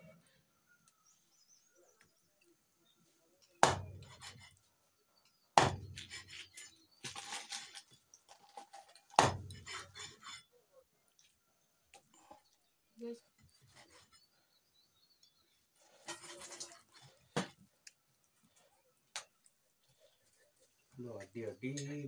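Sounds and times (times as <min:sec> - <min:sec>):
knife chopping meat on wood: 0:03.6 - 0:04.4, 0:05.6 - 0:06.2, 0:09.1 - 0:09.9.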